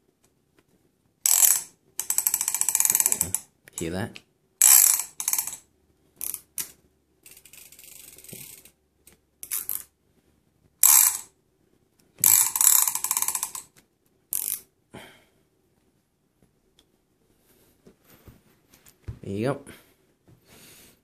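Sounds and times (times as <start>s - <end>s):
fishing reel ratchet clicking: 1.3s - 3.4s, 4.6s - 5.6s, 6.2s - 6.4s, 7.2s - 8.7s, 10.8s - 11.3s, 12.2s - 13.6s, 14.3s - 14.6s.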